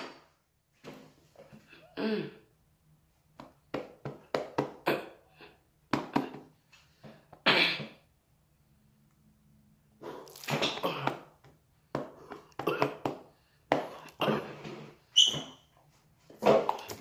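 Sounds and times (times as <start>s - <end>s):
person coughing and spluttering: 1.7s - 2.5s, 4.7s - 6.4s, 7.4s - 8.0s, 10.1s - 11.4s, 12.2s - 13.2s, 13.8s - 14.6s.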